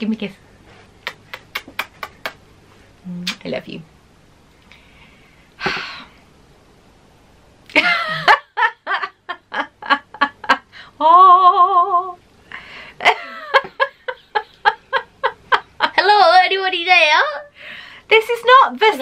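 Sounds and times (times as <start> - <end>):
woman and boy laughing: 7.7 - 10.7, 13.0 - 16.0.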